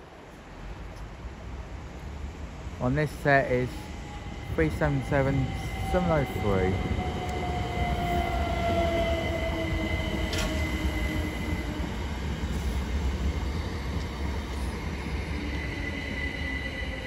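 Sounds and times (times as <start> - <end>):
electric train rumbling: 0.0 - 17.0
train whine falling in pitch: 5.5 - 11.9.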